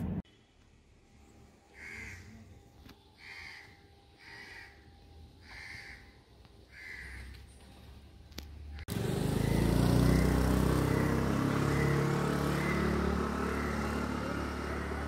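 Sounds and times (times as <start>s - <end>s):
crow cawing: 1.7s - 2.4s, 3.2s - 7.4s, 10.1s - 14.0s.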